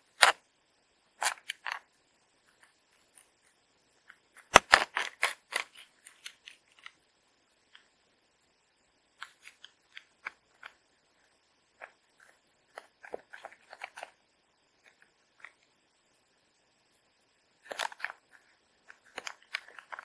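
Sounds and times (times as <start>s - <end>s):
plastic pouch crinkling: 4.3s - 7.0s, 11.8s - 14.2s, 17.6s - 20.0s.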